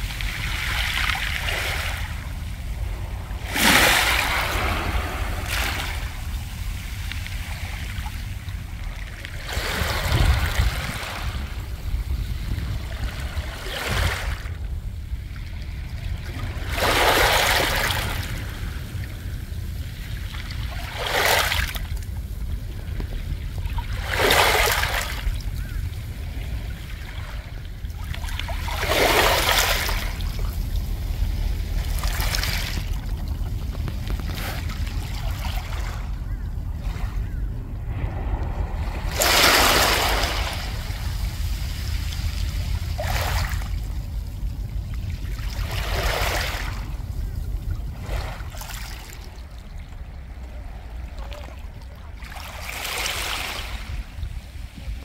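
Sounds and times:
waves washing over pebbles: 0.0 - 14.6, 16.1 - 19.0, 19.8 - 55.0
low rumble: 0.0 - 16.7, 25.1 - 52.2.

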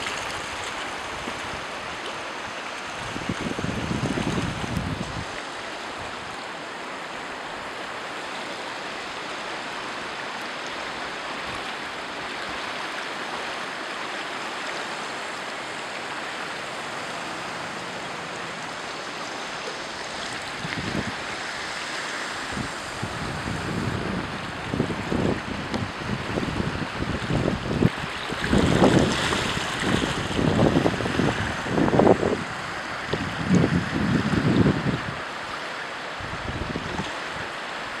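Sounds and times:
river water rushing: 0.0 - 38.0
wind buffeting microphone: 3.0 - 5.4, 16.6 - 21.8, 22.4 - 35.3, 36.2 - 37.5.

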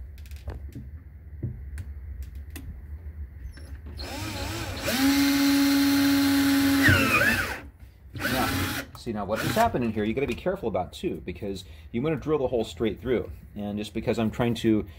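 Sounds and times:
cordless drill motor spinning: 3.9 - 9.8.

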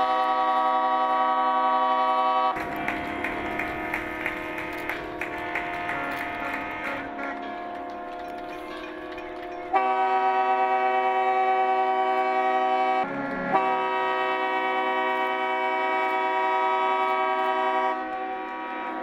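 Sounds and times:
foghorn blasts: 0.0 - 8.8, 9.6 - 19.0.

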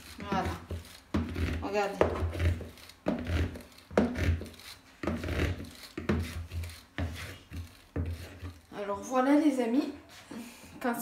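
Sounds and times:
whisk thudding through batter: 0.0 - 8.8.

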